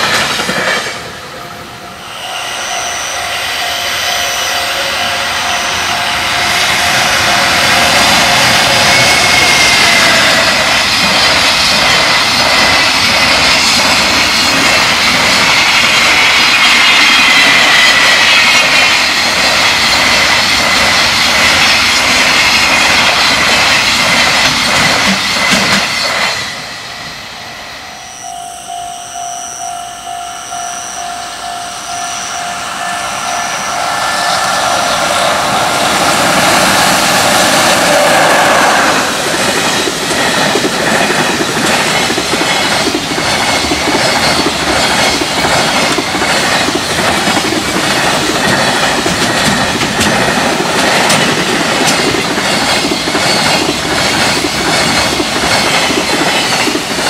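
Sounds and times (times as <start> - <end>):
wagons clattering over rail joints: 0.0 - 1.1, 38.7 - 57.0
crossing warning bell ringing: 0.0 - 57.0
freight train rumbling past: 0.0 - 57.0.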